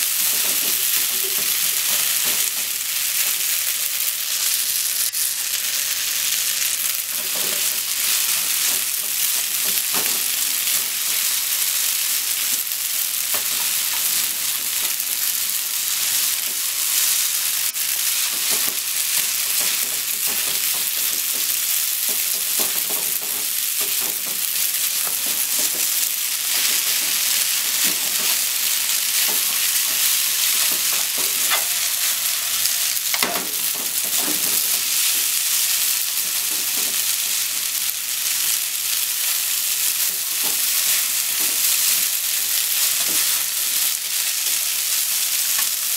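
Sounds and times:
noodles sizzling in frying pan: 0.0s - 45.9s
chopsticks tapping and scraping pan: 0.2s - 3.4s, 18.2s - 35.4s, 40.0s - 42.0s.

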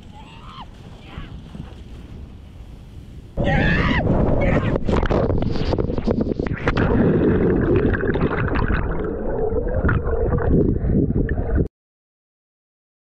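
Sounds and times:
wind buffeting microphone: 0.0s - 7.7s
water splashing and gurgling: 4.0s - 11.7s.

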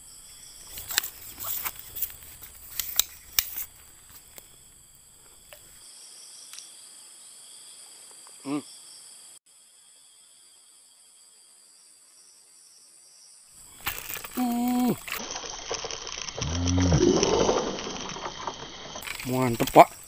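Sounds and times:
insects droning: 0.0s - 20.0s
handling clicks and rustles: 0.6s - 4.6s, 13.7s - 16.4s, 17.1s - 20.0s.

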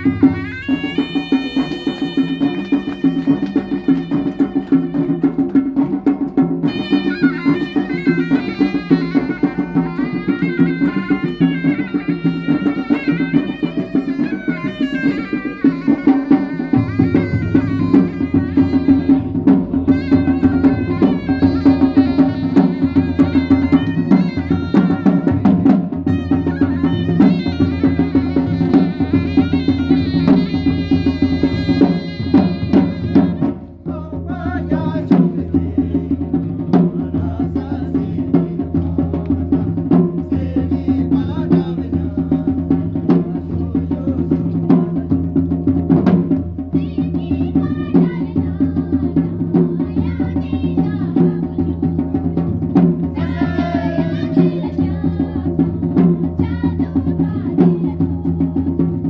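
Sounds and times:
reed pipe melody: 0.0s - 6.0s, 6.6s - 33.7s
drums beating: 0.0s - 59.0s.

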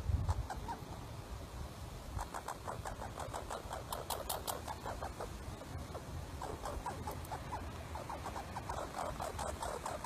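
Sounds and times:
squirrel chirping: 0.1s - 1.1s, 2.1s - 10.0s.

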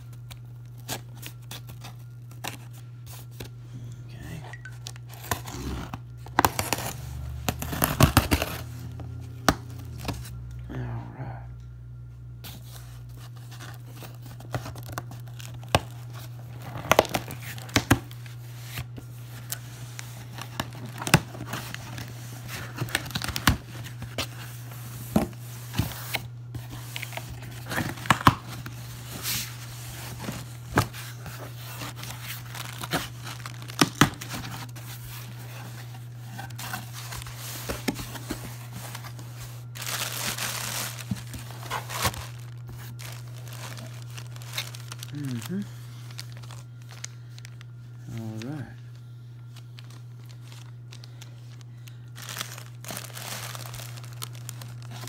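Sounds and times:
plastic packing crinkling: 0.0s - 3.5s, 4.5s - 10.4s, 12.6s - 55.0s
steady low hum: 0.0s - 55.0s
packing tape ripping: 4.8s - 10.3s, 13.6s - 24.1s, 26.9s - 47.7s, 49.8s - 55.0s
cardboard crackling: 4.9s - 10.4s, 12.5s - 48.7s, 49.4s - 55.0s.

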